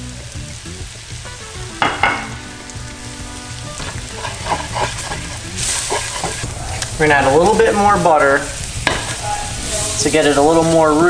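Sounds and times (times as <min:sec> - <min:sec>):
roux sizzling in pan: 0:00.0 - 0:11.0
metal spatula scraping pan: 0:03.8 - 0:08.2, 0:08.9 - 0:10.5.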